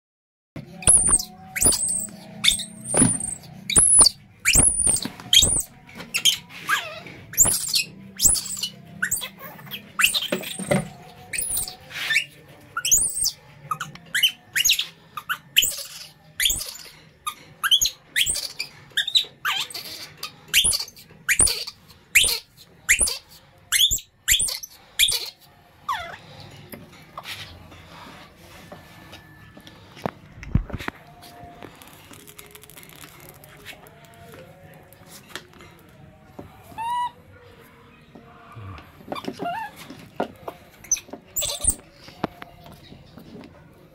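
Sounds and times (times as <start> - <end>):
baby monkey squealing: 0.8 - 26.2, 36.8 - 37.2, 39.2 - 39.8, 40.8 - 41.8.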